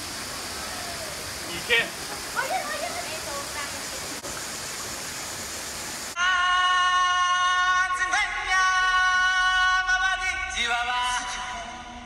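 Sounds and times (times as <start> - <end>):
waterfall and stream water rushing: 0.0 - 6.2
background music with singing voice: 6.2 - 12.0.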